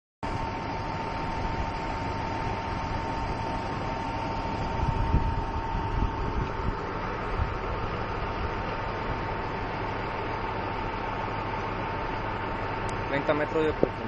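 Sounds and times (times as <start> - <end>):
diesel engine idling: 0.2 - 14.0
thin steady whine: 0.2 - 14.0
wind buffeting microphone: 4.4 - 9.5.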